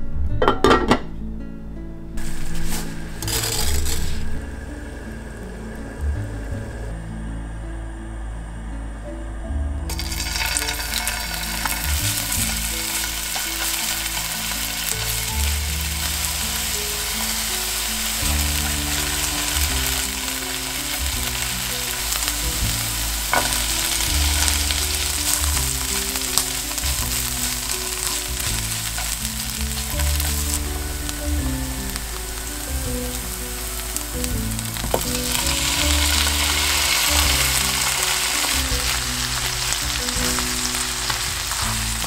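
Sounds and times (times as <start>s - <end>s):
garlic sizzling in hot oil: 2.2s - 4.4s, 9.9s - 42.0s.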